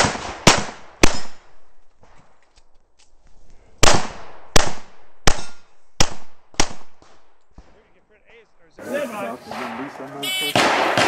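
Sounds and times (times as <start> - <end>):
pistol shots with echo: 9.5 - 11.0.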